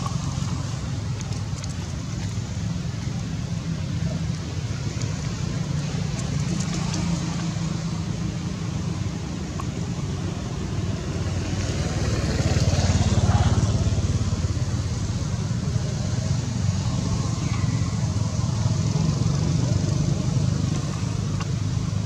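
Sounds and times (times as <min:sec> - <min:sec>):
vehicle engine passing by: 0:10.7 - 0:22.0.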